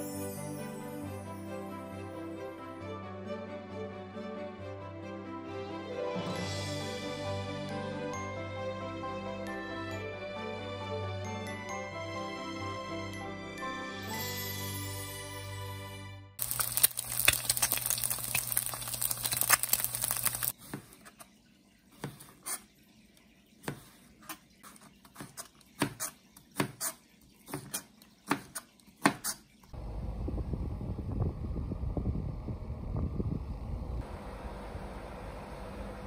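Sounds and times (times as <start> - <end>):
dense crackling: 16.4 - 20.5
wind rumbling on microphone: 29.8 - 34.0
low hum: 29.8 - 36.0.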